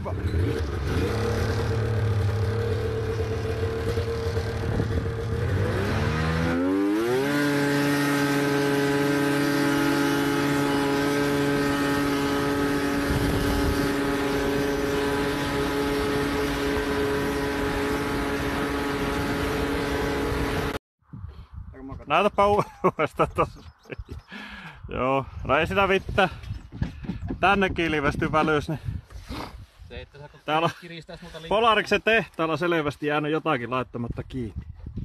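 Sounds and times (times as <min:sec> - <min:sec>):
snowmobile engine revving: 0:00.0 - 0:20.8.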